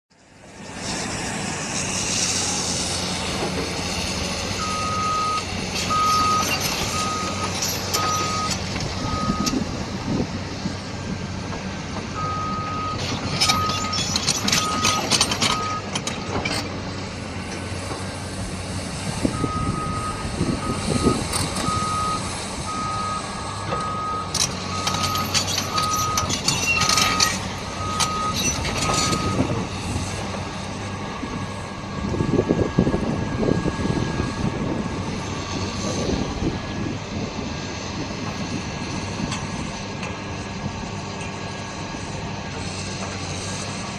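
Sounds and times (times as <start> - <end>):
diesel engine droning: 0.1 - 43.9
excavator travel alarm beeping: 4.6 - 9.6, 12.2 - 16.6, 19.3 - 29.6
steel tracks rattling and clanking: 12.8 - 18.1, 23.6 - 31.0.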